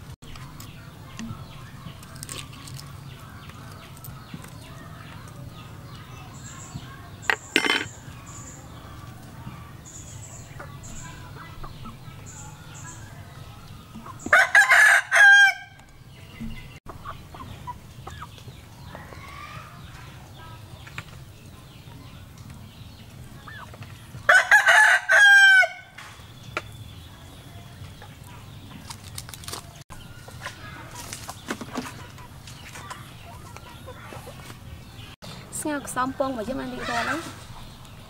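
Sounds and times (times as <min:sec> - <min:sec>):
rooster crowing: 0:14.3 - 0:15.8, 0:24.3 - 0:25.9.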